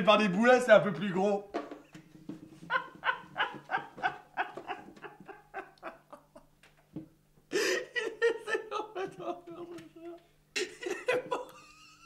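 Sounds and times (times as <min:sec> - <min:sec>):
man laughing: 0:02.7 - 0:06.5, 0:07.5 - 0:12.0.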